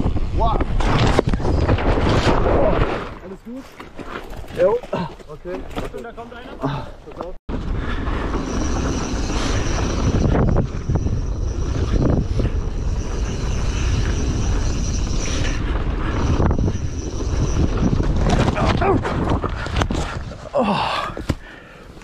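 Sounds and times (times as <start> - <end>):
wind rushing over camera: 0.0 - 3.2, 7.5 - 21.3
mountain bike rumble and rattle: 0.0 - 21.6
thin high whine: 7.8 - 19.6.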